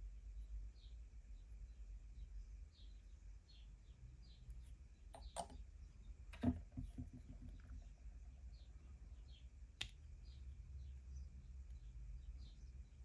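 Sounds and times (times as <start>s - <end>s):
plastic parts clicking and knocking: 5.1s - 5.6s, 6.3s - 7.7s.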